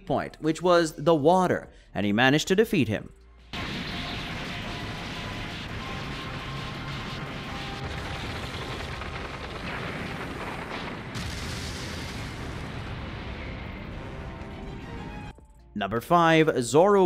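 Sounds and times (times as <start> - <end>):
rumble of blasts and impacts: 3.5 - 15.4.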